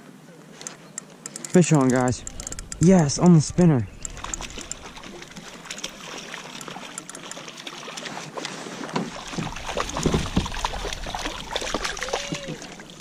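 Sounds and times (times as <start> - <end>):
small ticks: 0.6 - 2.9, 6.6 - 7.4
fish splashing at water surface: 4.0 - 13.0.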